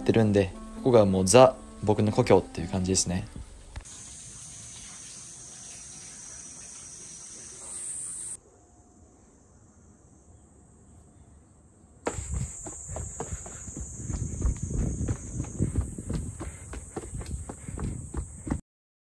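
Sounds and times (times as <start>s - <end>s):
cicadas buzzing: 0.0s - 8.4s, 12.0s - 18.6s
footsteps thumps and rustles: 12.1s - 18.6s.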